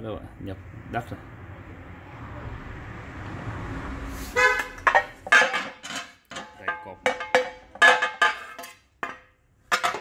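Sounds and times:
metal plates clanking: 4.6s - 10.0s.

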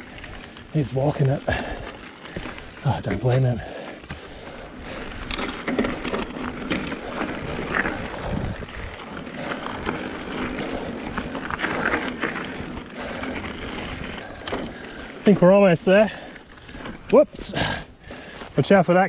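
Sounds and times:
bike rattling and knocking: 0.0s - 18.4s
bike tyres crunching on gravel: 0.0s - 19.0s
wind on microphone: 7.3s - 9.2s.

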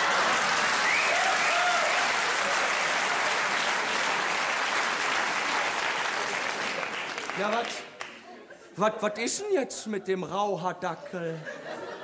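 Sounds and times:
audience applauding: 0.0s - 8.3s
crowd cheering: 0.0s - 8.3s.

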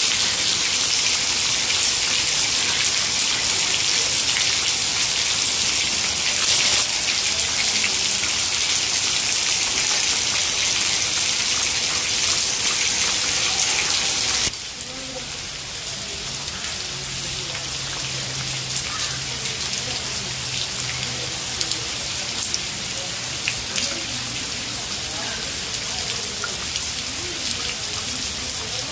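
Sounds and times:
heavy rain on foliage: 0.0s - 28.9s
raindrops pattering on leaves: 0.0s - 28.9s.

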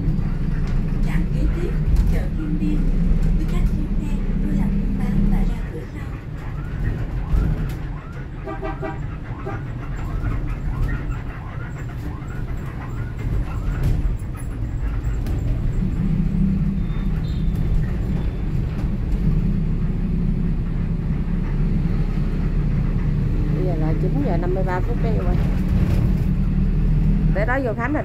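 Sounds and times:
bus engine and road rumble: 0.0s - 28.0s
horn honking: 8.4s - 9.9s, 16.1s - 18.5s.

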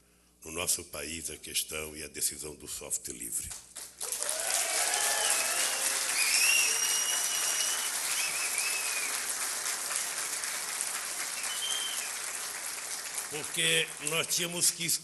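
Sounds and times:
audience applauding: 3.8s - 14.6s
high whistles: 6.1s - 9.2s, 11.3s - 12.2s.

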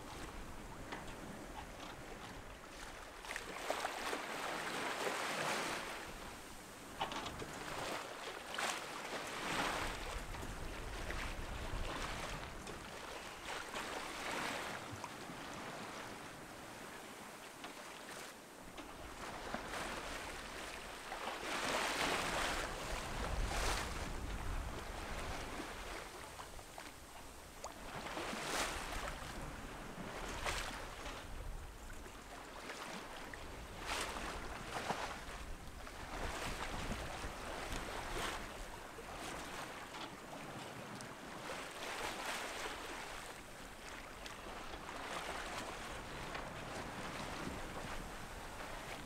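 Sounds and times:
sea water rushing past hull: 0.0s - 49.0s
wind rumble on microphone: 9.4s - 12.8s, 21.9s - 32.1s, 33.3s - 39.6s, 45.7s - 49.0s.

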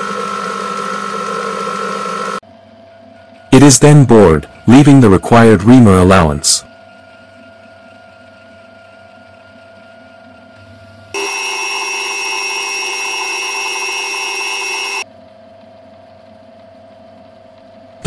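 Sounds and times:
metal lathe humming: 0.0s - 2.4s, 11.2s - 15.0s
high-pitched cutting squeal: 11.2s - 15.0s.

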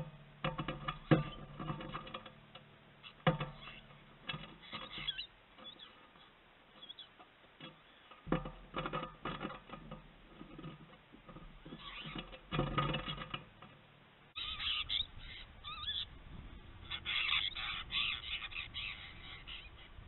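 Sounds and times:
birds chattering harshly: 3.0s - 8.3s, 11.6s - 13.4s, 14.3s - 20.0s.

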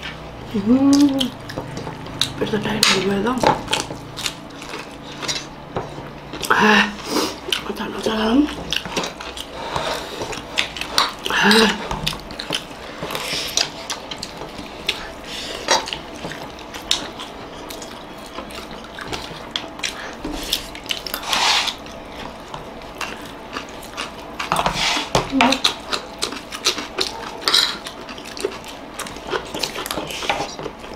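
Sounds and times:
cutlery scraping plates: 5.1s - 6.1s.

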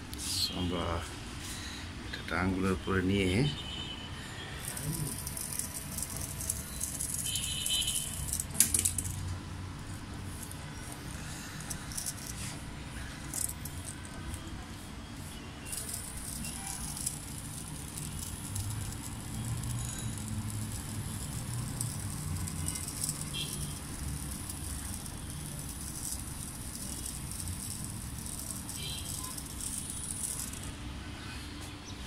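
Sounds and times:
toy motor whirring and rattling: 4.6s - 9.4s, 10.2s - 30.8s.

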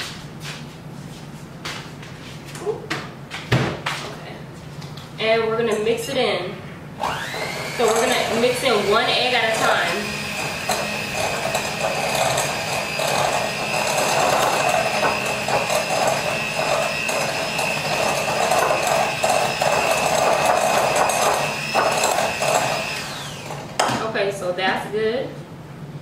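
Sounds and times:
electric hand mixer whining: 7.0s - 23.8s.

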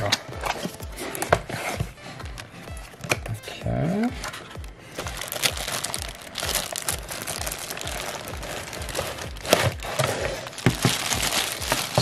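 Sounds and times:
plastic bag crinkling: 4.6s - 12.0s.

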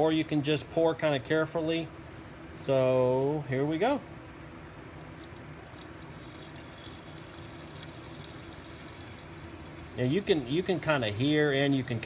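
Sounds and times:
fluid trickling into reservoir: 5.0s - 12.0s.

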